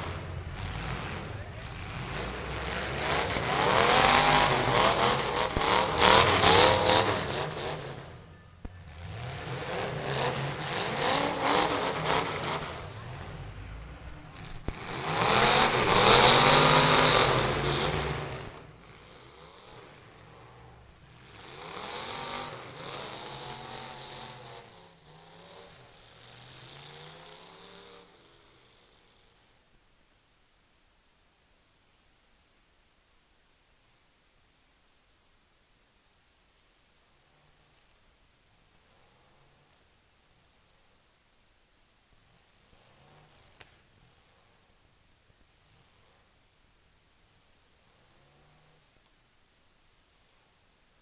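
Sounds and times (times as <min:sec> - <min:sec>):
car engines revving hard: 0:00.0 - 0:29.4, 0:42.2 - 0:44.6, 0:47.8 - 0:48.9.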